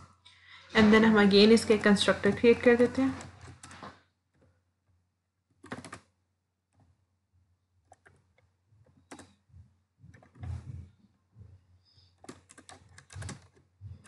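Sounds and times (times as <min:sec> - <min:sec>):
keyboard keystrokes: 0:05.6 - 0:06.1, 0:09.0 - 0:09.4, 0:12.2 - 0:14.0.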